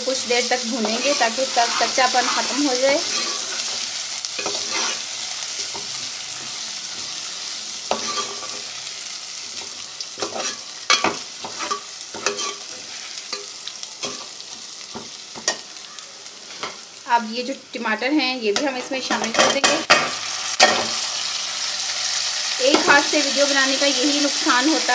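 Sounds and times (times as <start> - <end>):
onions sizzling in hot fat: 0.0 - 24.9
metal spoon scraping pot: 4.4 - 5.0.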